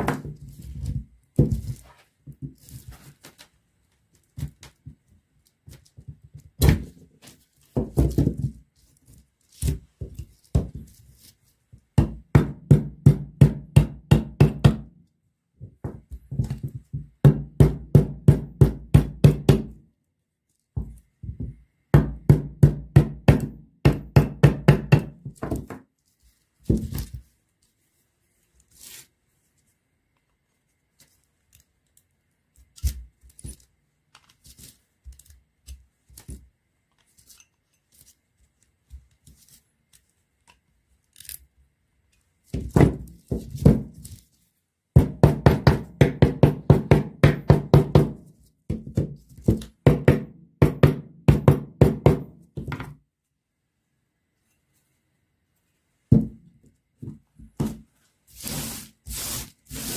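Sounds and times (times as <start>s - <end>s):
hammer striking chisel: 22.0s - 25.6s.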